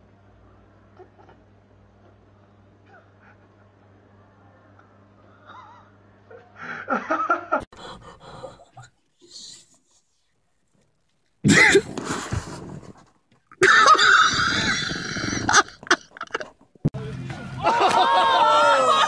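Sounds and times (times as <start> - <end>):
person laughing in wheezing bursts: 13.6 - 16.5.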